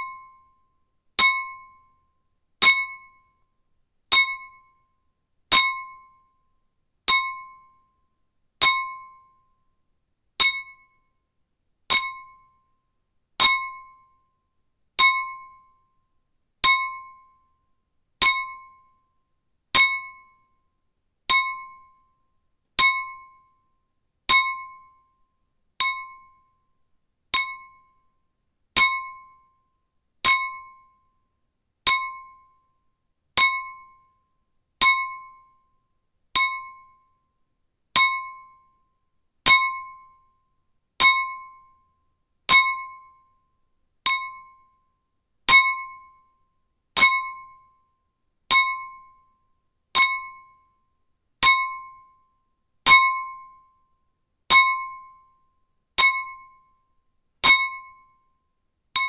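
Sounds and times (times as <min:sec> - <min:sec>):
metal spoon tapping glass bowl: 0:25.8 - 0:26.1, 0:56.0 - 0:56.3.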